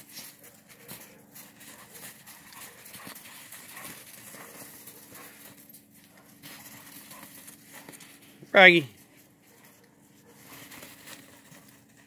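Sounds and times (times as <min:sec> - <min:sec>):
dog paws crunching on snow: 0:00.0 - 0:12.0.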